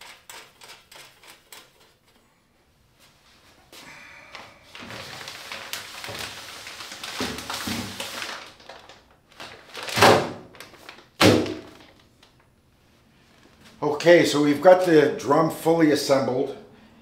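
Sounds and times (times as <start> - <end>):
plastic bag crinkling: 4.7 - 12.5.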